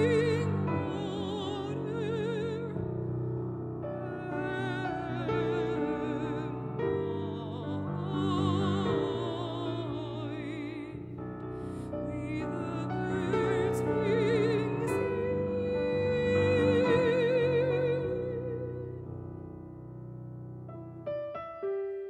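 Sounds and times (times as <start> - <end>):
woman singing with vibrato: 0.0 - 2.9, 4.0 - 11.0, 11.6 - 19.0
piano: 0.0 - 22.0.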